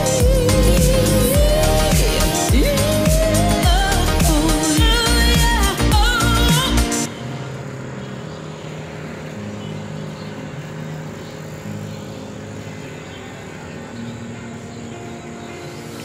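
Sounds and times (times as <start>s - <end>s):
road traffic hum: 0.0s - 16.0s
cars passing: 7.0s - 16.0s.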